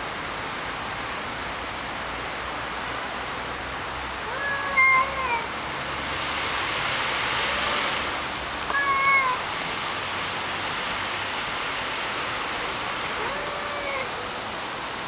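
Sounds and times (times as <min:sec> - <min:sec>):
steady background hiss: 0:00.0 - 0:15.0
cats yowling: 0:04.2 - 0:05.5, 0:08.7 - 0:09.6, 0:13.1 - 0:14.3.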